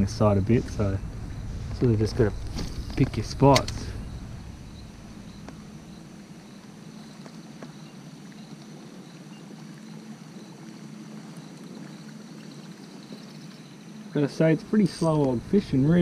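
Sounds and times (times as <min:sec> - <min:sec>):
quiet water around a canoe: 0:00.0 - 0:16.0
steady low hum: 0:00.0 - 0:16.0.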